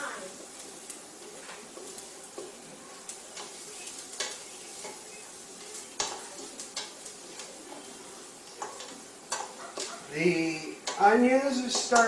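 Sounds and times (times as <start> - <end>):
onions sizzling in a pot: 0.0 - 12.0
utensil scraping and knocking pot: 8.4 - 10.1, 10.8 - 12.0.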